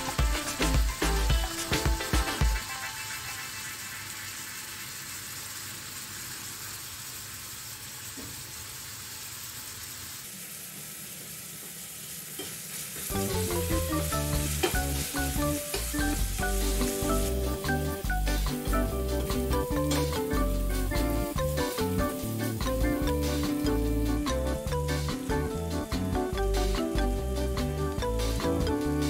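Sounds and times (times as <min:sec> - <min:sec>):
background music: 0:00.0 - 0:03.6, 0:13.1 - 0:29.0
onions sizzling in hot oil: 0:00.0 - 0:29.0.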